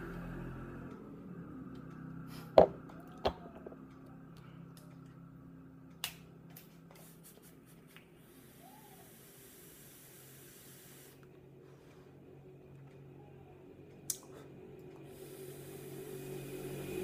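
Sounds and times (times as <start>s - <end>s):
plastic bottle knocking on glass: 2.6s - 3.8s
faint steady hiss: 6.6s - 12.4s.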